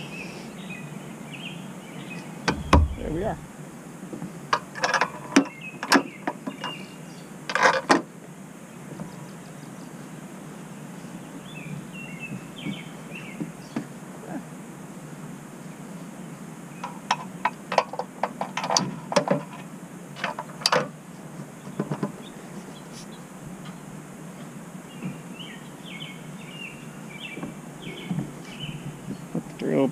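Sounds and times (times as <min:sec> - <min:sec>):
outdoor background noise: 0:00.0 - 0:29.9
bird chirping: 0:00.1 - 0:03.5, 0:24.9 - 0:29.4.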